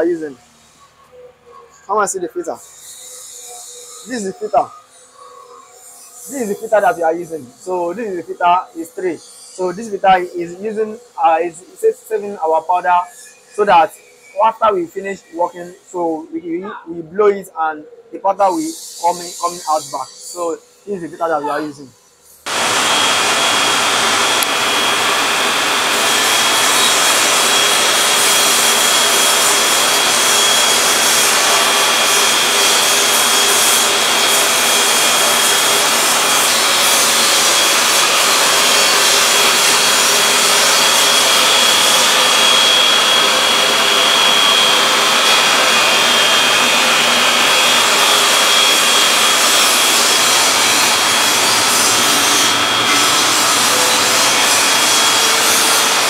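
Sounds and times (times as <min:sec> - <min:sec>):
spray gun thin whine: 0:00.0 - 0:14.6, 0:18.4 - 0:56.0
extraction fan air rush: 0:22.5 - 0:56.0.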